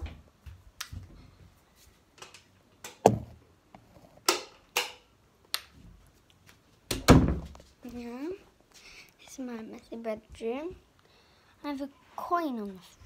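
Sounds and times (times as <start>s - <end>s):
sharp knock: 3.0s - 3.3s
loud thump: 3.0s - 3.4s.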